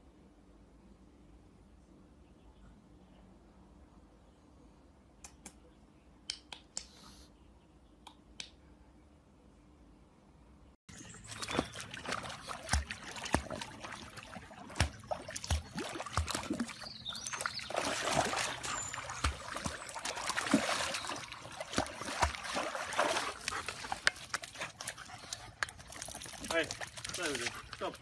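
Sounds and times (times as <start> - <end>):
dog splashing through water: 10.9 - 28.0.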